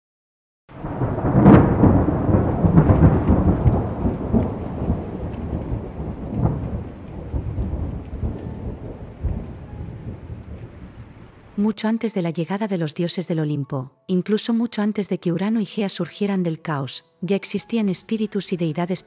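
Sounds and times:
rain hissing: 0:00.7 - 0:11.6
thunder rumbling: 0:00.7 - 0:11.7.

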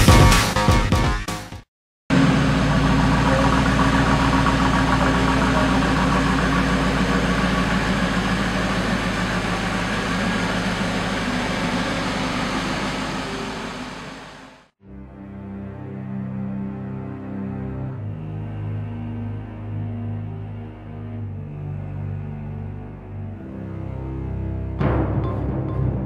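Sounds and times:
truck engine idling: 0:02.1 - 0:14.7.

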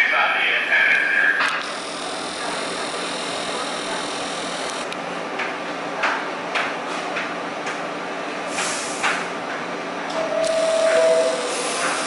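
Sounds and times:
subway equipment hum: 0:00.0 - 0:12.0
short air hisses: 0:08.5 - 0:09.1.

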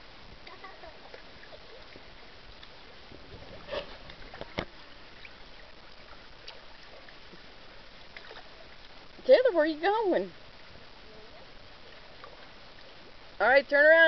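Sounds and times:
pool water lapping and splashing: 0:00.0 - 0:14.0.

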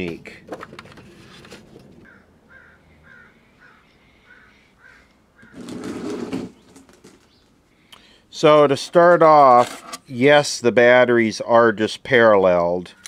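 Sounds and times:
bird calling: 0:02.0 - 0:08.2.

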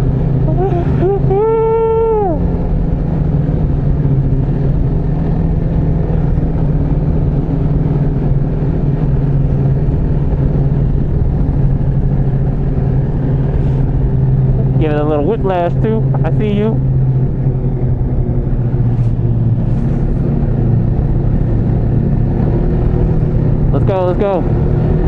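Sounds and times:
snowmobile engine running: 0:00.0 - 0:25.0
held high tone: 0:00.4 - 0:02.6.

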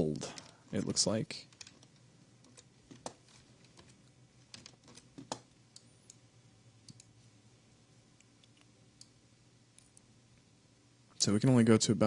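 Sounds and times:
faint low hum: 0:00.0 - 0:12.0
mouse clicks: 0:06.8 - 0:07.2.

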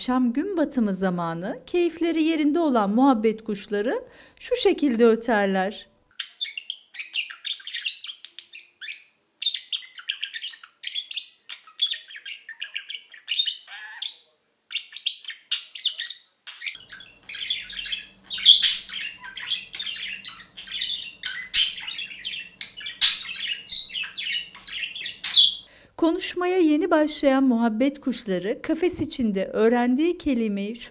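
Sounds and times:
budgerigar warbling: 0:06.2 - 0:25.6.

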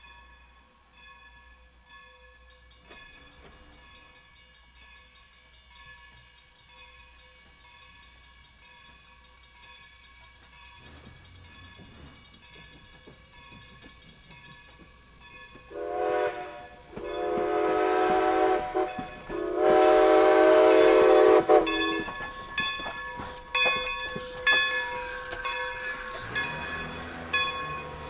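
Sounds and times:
locomotive exhaust chuffs: 0:08.9 - 0:28.0
steam whistle blasts: 0:15.7 - 0:22.2.

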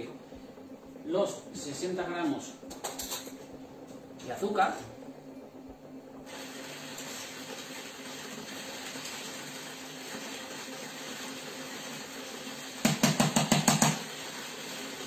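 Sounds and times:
food processor whisking cream: 0:06.2 - 0:15.0
spoon tapping a dish: 0:12.9 - 0:14.0.

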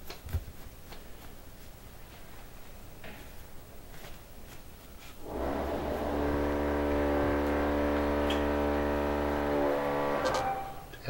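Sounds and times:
steady engine drone: 0:05.2 - 0:11.0.

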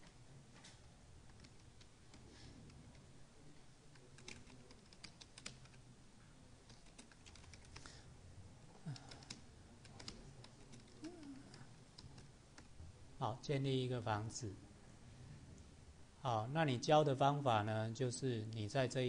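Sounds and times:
computer keyboard typing: 0:01.3 - 0:03.0, 0:03.9 - 0:05.8, 0:06.6 - 0:07.9, 0:08.9 - 0:12.7.

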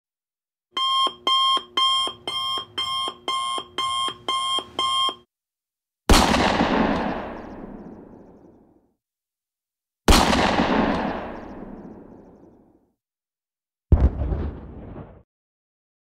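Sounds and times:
alarm clock beeping: 0:00.8 - 0:05.3
loud boom: 0:13.9 - 0:15.2.

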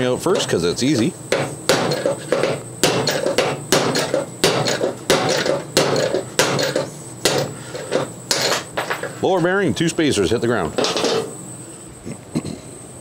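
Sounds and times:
hammer striking metal: 0:00.3 - 0:09.1.

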